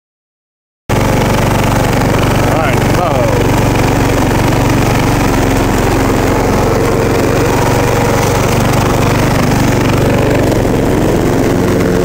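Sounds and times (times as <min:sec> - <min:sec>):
lawn tractor engine running: 0:00.9 - 0:12.0.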